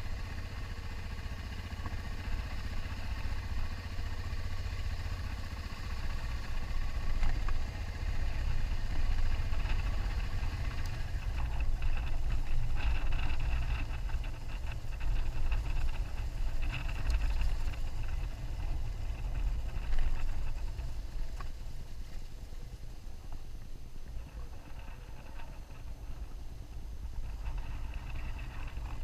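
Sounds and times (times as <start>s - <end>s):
motorcycle engine running: 0.0s - 29.0s
wind rumble on microphone: 0.0s - 29.0s.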